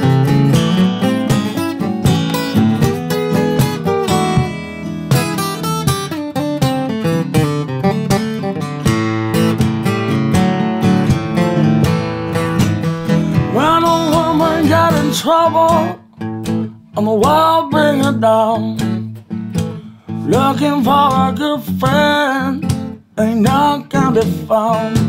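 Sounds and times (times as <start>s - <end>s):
acoustic guitar playing blues: 0.0s - 25.0s
man moaning wordless singing: 23.5s - 25.0s.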